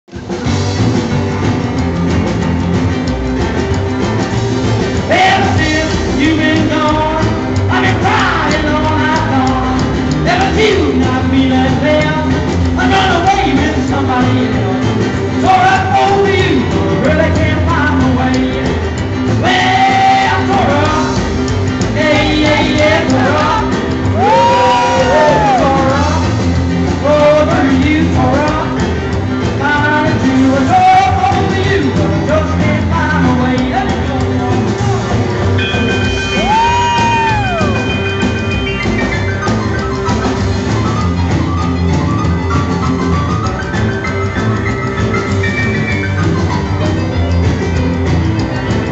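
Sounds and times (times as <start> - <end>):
drum kit: 0.1 - 48.9
electric keyboard: 0.1 - 48.9
man singing: 5.0 - 26.4, 27.0 - 37.8.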